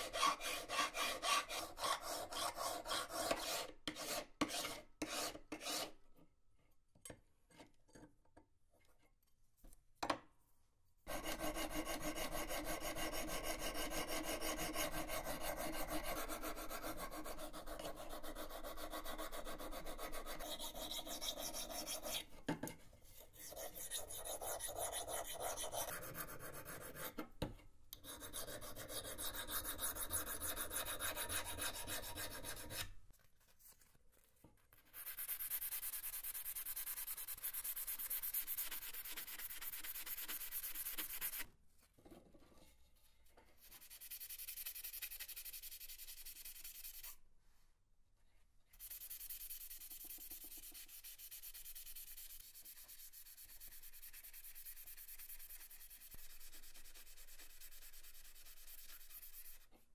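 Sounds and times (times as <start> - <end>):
file scraping steel: 0.0 - 6.0, 11.1 - 22.3, 23.2 - 27.2, 28.0 - 32.9.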